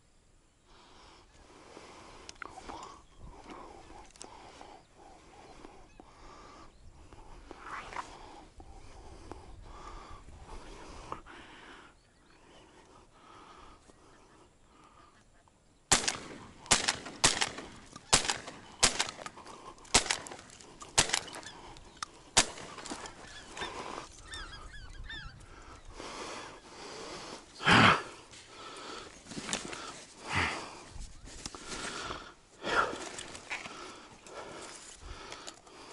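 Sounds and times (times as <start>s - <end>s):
geese honking: 22.4s - 26.8s.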